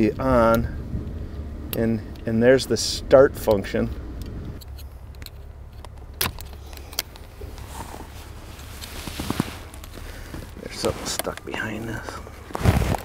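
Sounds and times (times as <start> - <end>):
low hum: 0.0 - 13.0
metallic clicks: 3.5 - 7.6.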